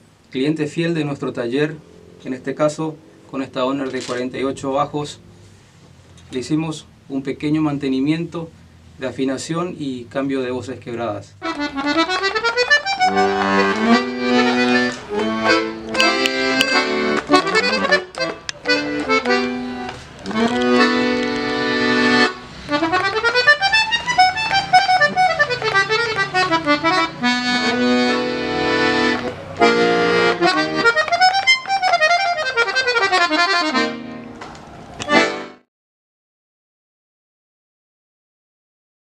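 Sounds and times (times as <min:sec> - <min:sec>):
accordion playing a tune: 0:11.4 - 0:35.7.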